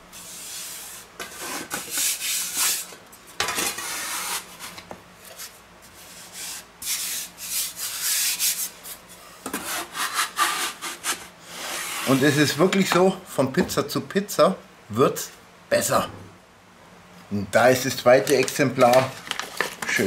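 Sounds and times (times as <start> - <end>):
metal peel scraping wooden board: 9.5 - 12.4.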